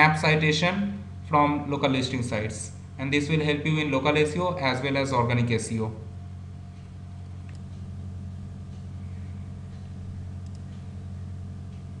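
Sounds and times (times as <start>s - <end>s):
low hum: 0.0s - 12.0s
faint clicks: 6.8s - 7.9s, 9.7s - 10.9s.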